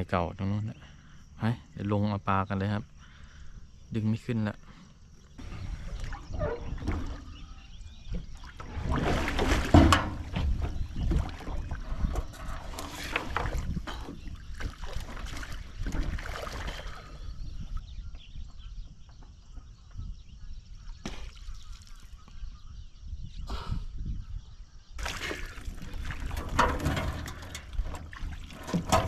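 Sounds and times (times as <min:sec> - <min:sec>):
water splashing against boat: 0:05.4 - 0:17.5, 0:25.0 - 0:29.0.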